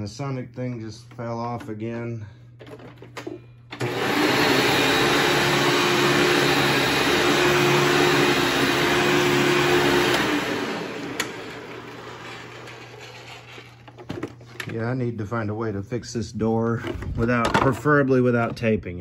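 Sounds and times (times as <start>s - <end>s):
vacuum cleaner motor running: 3.7s - 14.4s.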